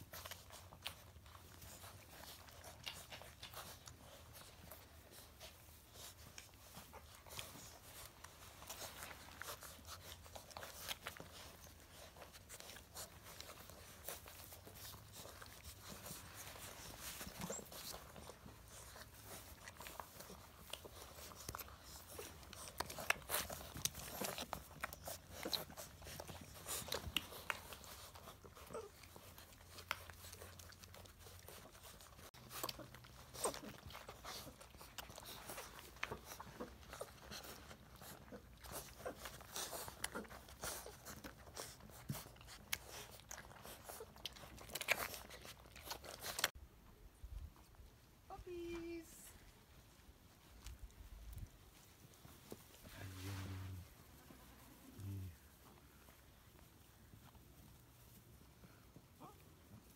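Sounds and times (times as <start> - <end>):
puppy vocalisations: 0.0 - 46.6
puppies scuffling and clicking: 0.0 - 59.9.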